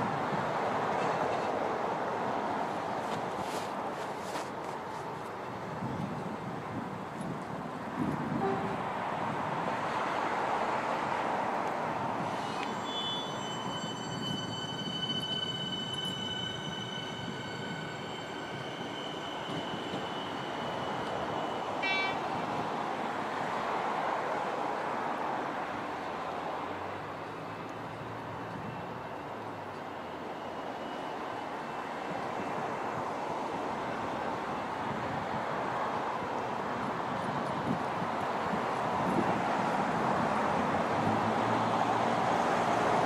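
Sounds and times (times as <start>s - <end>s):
electric train running on track: 0.0s - 43.0s.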